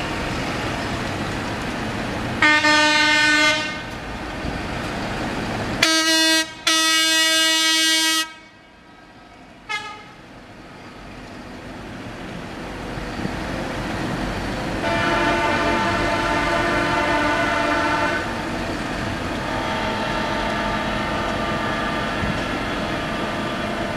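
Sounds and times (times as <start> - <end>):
road traffic noise: 0.0 - 23.9
vehicle horns blasting: 2.4 - 3.8, 14.8 - 18.3, 19.5 - 22.3.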